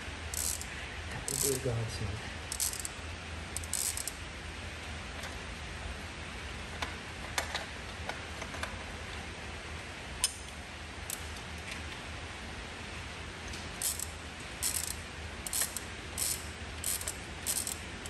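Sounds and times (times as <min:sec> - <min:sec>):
low steady hum: 0:00.0 - 0:18.0
hand tool clicks and ticks: 0:00.4 - 0:00.6, 0:02.5 - 0:02.9, 0:13.8 - 0:17.8.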